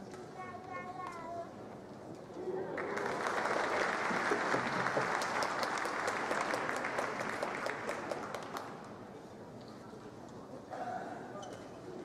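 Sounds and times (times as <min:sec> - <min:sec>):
crowd applauding: 0:02.7 - 0:08.8.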